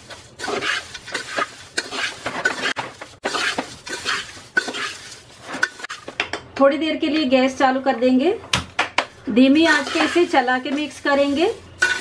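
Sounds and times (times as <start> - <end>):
metal spatula scraping a pot: 0.0 - 6.1, 9.5 - 12.0
dry flakes rustling: 9.2 - 12.0.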